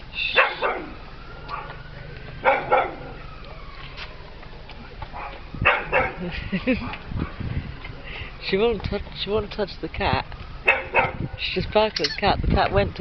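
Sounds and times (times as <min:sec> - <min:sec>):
dog barking: 0:00.3 - 0:01.8, 0:02.4 - 0:03.2, 0:05.1 - 0:06.2, 0:10.7 - 0:11.4.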